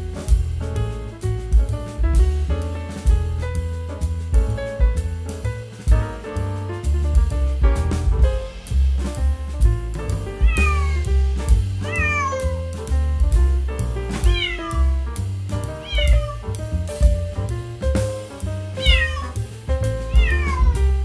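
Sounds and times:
background music with beat and bass: 0.0 - 21.0
kitten meowing: 10.4 - 11.1, 11.9 - 12.5, 14.2 - 15.0, 15.8 - 16.4, 18.8 - 19.4, 20.1 - 20.8.

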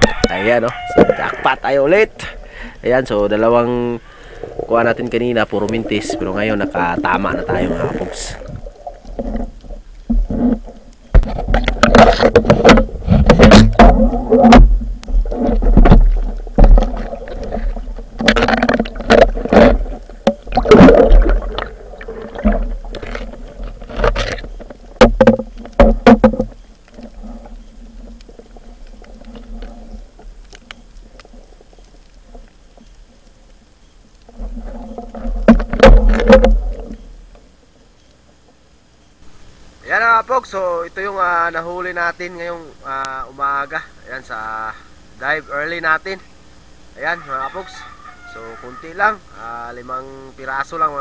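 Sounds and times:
water rushing and bubbling underwater: 2.3 - 37.8.

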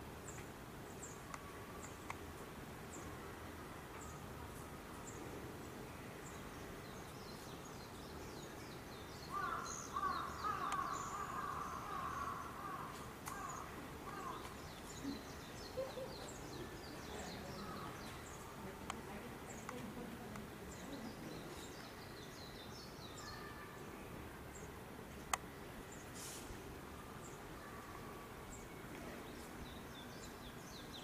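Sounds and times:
outdoor background noise: 0.0 - 31.0
birds chirping: 4.9 - 31.0.

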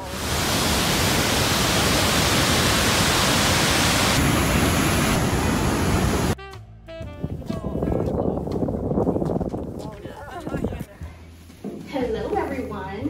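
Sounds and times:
waterfall rushing: 0.0 - 6.4.

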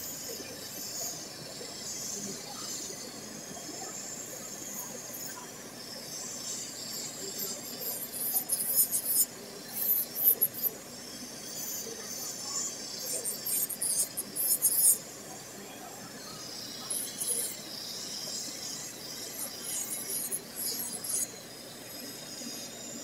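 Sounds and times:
sanding band grinding fingernail: 6.2 - 10.7, 11.4 - 15.1, 16.4 - 23.0.

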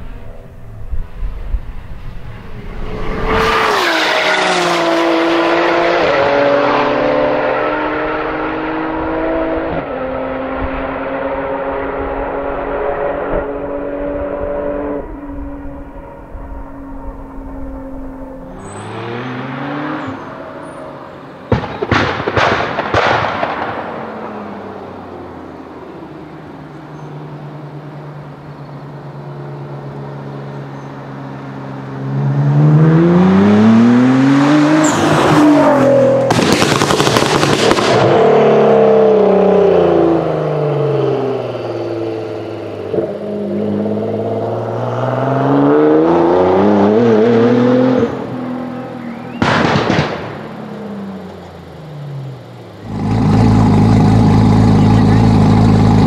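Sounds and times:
car accelerating past: 0.1 - 25.6, 31.8 - 56.0
car engine crackling and popping: 21.1 - 25.8, 36.0 - 38.4, 47.9 - 56.0.

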